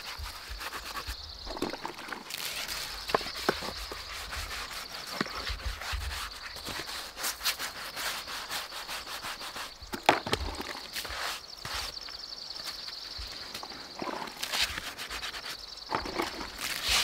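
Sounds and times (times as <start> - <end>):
sponge scrubbing wood: 0.0 - 10.0.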